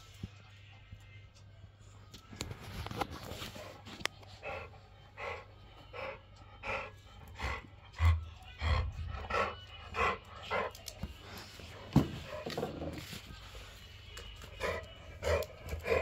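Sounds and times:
dog panting: 3.2 - 13.0, 14.4 - 16.0.

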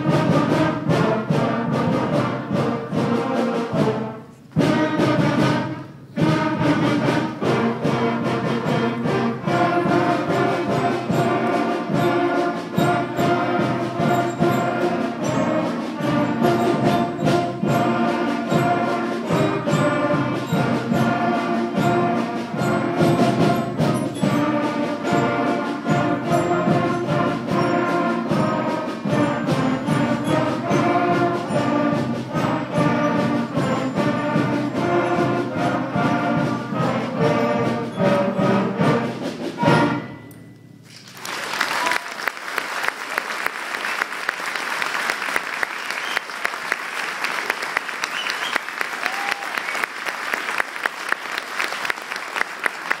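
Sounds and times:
concert band playing a march: 0.0 - 40.8, 41.8 - 53.0
audience applauding: 40.9 - 53.0.

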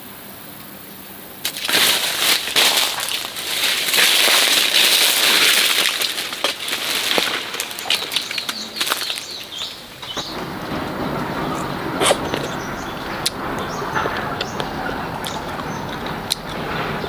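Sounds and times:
leafy branches rustling: 0.6 - 17.0
bird chirps: 7.2 - 17.0.

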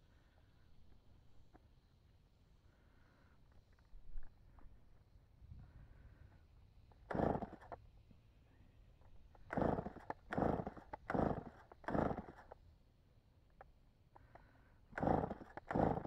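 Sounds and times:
chainsaw recoil starter yanks: 7.1 - 7.8, 9.4 - 12.6, 15.0 - 16.0.

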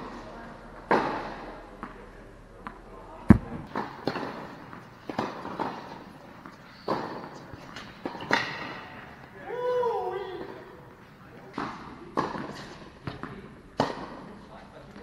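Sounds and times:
tennis balls struck and bouncing: 0.8 - 2.0, 2.6 - 9.3, 11.4 - 14.3.

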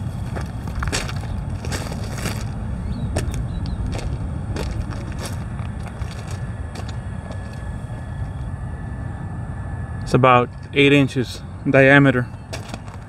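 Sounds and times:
footsteps crunching on gravel: 0.0 - 8.3, 12.3 - 13.0
steady low rumble: 0.0 - 13.0.

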